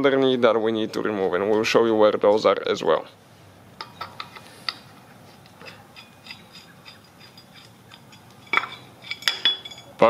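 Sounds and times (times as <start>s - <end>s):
light metallic clicks and clinks: 5.6s - 10.0s
metal clatter: 5.6s - 10.0s.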